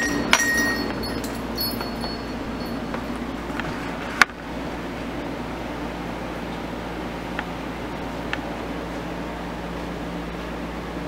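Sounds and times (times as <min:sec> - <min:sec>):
door bell jingling: 0:00.0 - 0:03.3.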